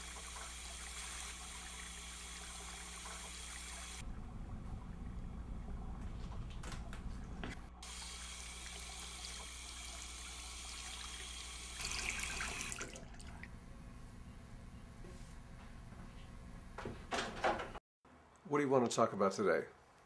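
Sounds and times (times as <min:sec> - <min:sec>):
sink tap water running: 0:00.0 - 0:04.0, 0:07.8 - 0:13.4.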